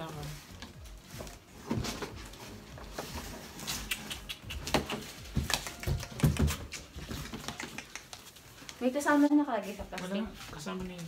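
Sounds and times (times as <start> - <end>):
cardboard box rustling and scratching: 0.0 - 3.9.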